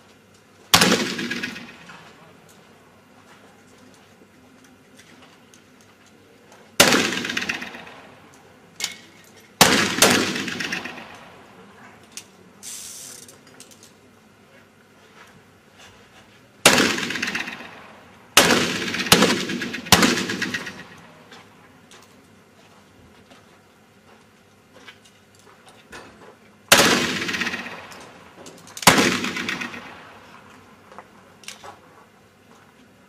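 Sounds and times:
pistol shots echoing: 0.7s - 2.1s, 6.8s - 8.2s, 9.6s - 11.5s, 16.6s - 21.1s, 26.7s - 28.2s, 28.8s - 30.2s.

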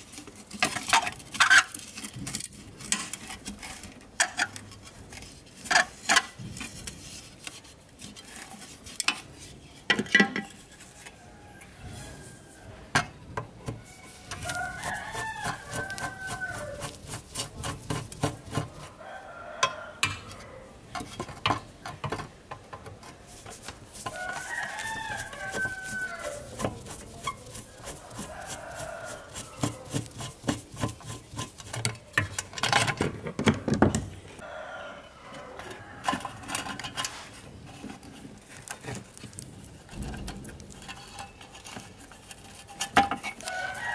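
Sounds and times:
rooster crowing: 11.0s - 12.9s, 13.8s - 17.0s, 18.8s - 20.8s, 24.1s - 30.2s, 34.4s - 37.0s, 43.4s - 43.9s.

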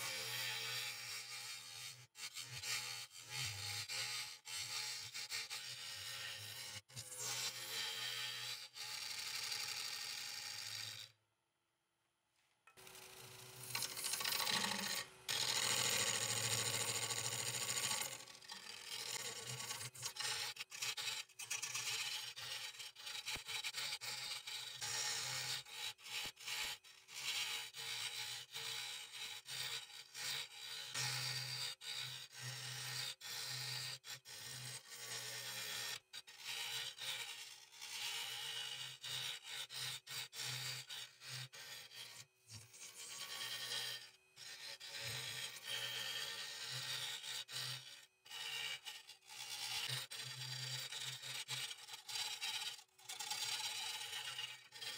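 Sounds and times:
gouge scraping wood: 0.0s - 10.7s, 12.8s - 26.4s.

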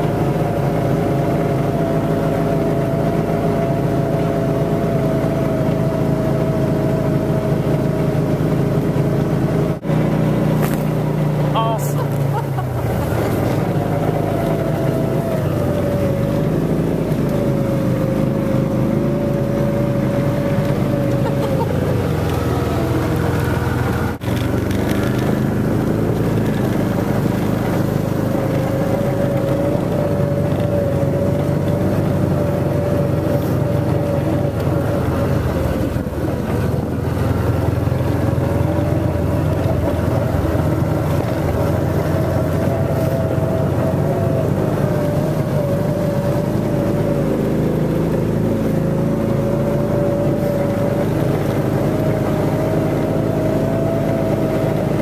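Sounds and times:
utility vehicle engine drone: 0.0s - 55.0s.

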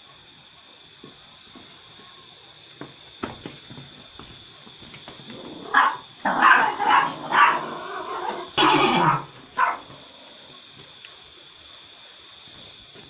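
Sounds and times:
dog barking: 5.5s - 10.1s.

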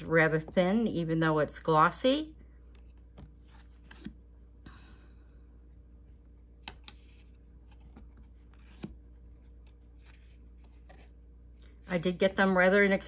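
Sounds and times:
cards sliding: 2.7s - 4.2s, 6.6s - 11.8s.

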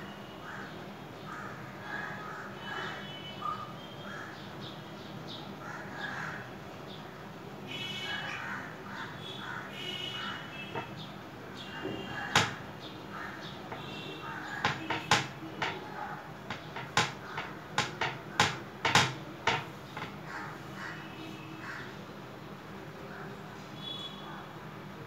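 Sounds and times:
birds calling: 7.8s - 22.2s
sharp clicks and knocks: 10.7s - 11.0s, 12.3s - 12.7s, 14.6s - 20.3s.

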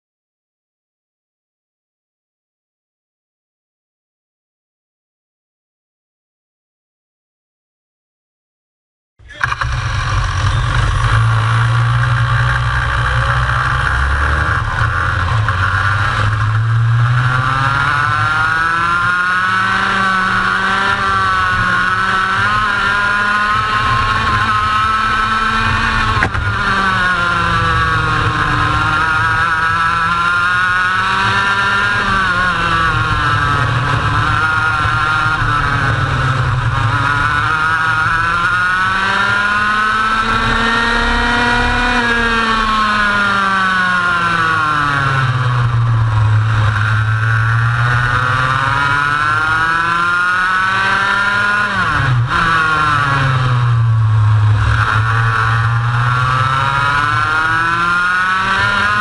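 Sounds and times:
heavy low rumble: 9.2s - 17.4s
kart engine accelerating: 9.2s - 59.0s.

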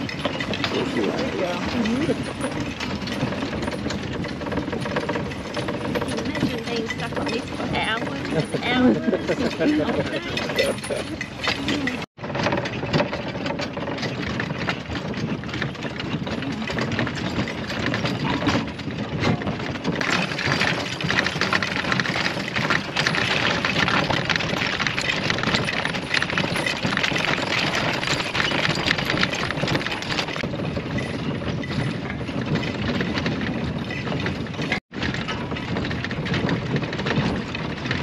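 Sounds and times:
wagon wheels rattling and clattering: 0.0s - 38.0s.

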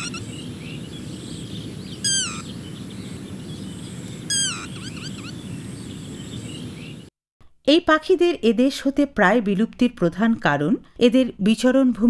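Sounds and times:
faint chirps: 0.0s - 7.1s
lapwing calling: 0.0s - 7.1s.

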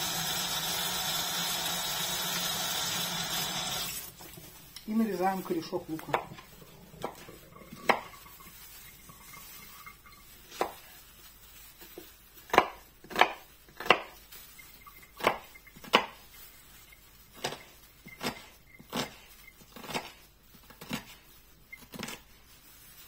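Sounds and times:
knife chopping on wooden board: 12.5s - 14.2s, 15.2s - 16.2s.

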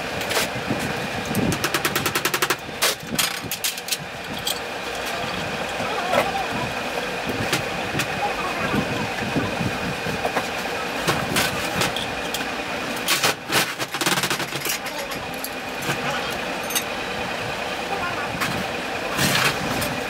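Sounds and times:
workshop machinery hum: 0.0s - 20.0s
rattling clicks: 1.6s - 5.8s.

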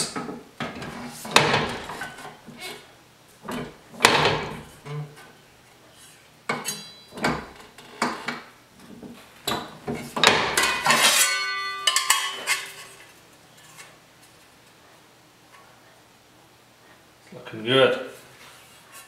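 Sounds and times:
sheet-metal brake clanking: 9.6s - 12.8s
sheet metal rattling and ringing: 10.2s - 12.8s.

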